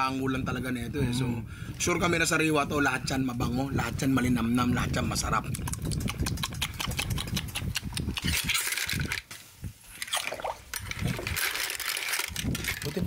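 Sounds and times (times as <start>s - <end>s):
shells and utensils clinking: 10.0s - 13.0s.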